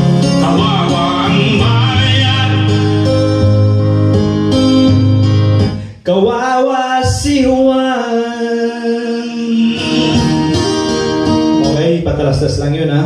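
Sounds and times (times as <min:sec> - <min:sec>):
acoustic guitar: 0:00.0 - 0:13.0
man singing: 0:00.2 - 0:03.4, 0:05.8 - 0:10.5.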